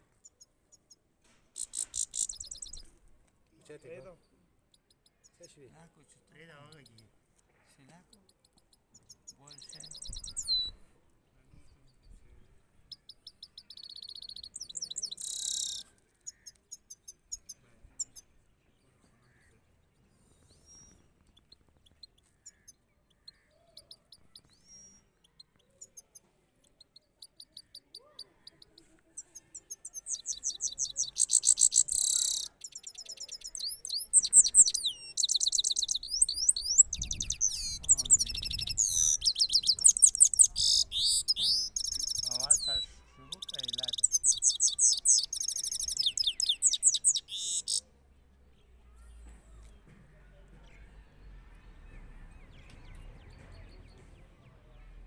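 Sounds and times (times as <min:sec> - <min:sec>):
finch twittering song: 0:01.6 - 0:02.9, 0:06.3 - 0:07.1, 0:08.0 - 0:10.8, 0:12.8 - 0:18.3, 0:20.2 - 0:47.9.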